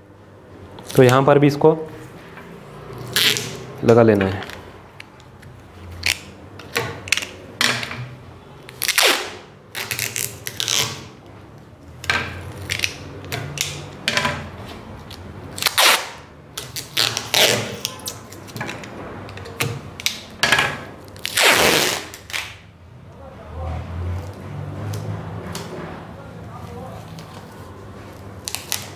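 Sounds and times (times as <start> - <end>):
adhesive tape tearing off roll: 0.8 - 1.2, 2.8 - 3.8, 4.4 - 7.4, 8.7 - 11.2, 12.0 - 14.0, 14.6 - 20.3, 21.0 - 22.6, 28.1 - 28.9.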